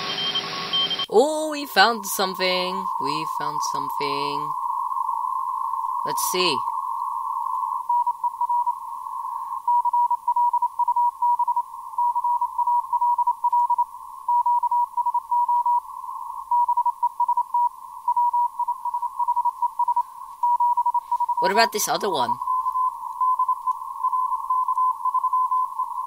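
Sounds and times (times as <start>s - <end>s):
morse code beeps: 0.0s - 1.1s, 1.8s - 4.5s, 7.8s - 8.9s, 9.6s - 15.8s, 16.5s - 26.0s
radio static hiss: 0.0s - 26.0s.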